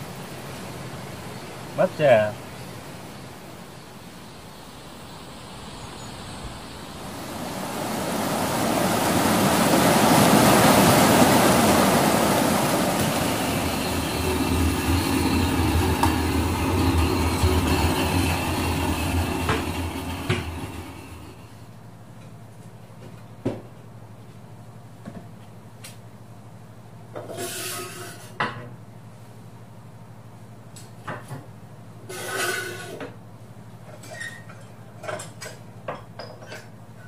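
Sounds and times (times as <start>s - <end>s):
motor hum: 4.6s - 21.7s.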